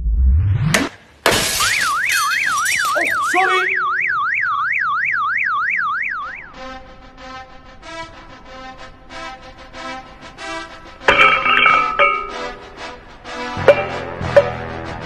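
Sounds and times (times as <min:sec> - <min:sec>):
fast warbling siren effect: 0:01.6 - 0:06.5
rhythmic music: 0:11.1 - 0:15.0.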